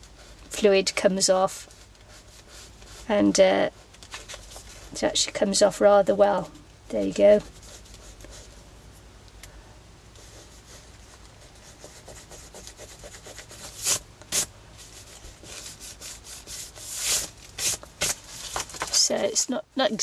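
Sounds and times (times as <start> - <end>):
fingers rubbing on paper: 10.2 - 18.2.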